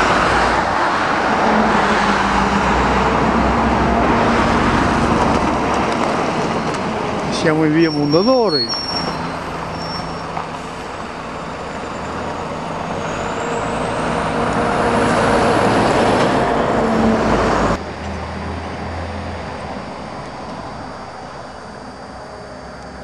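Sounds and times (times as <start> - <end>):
vehicle passing close by: 0.0 - 7.6, 11.2 - 19.8
traffic noise: 0.0 - 23.0.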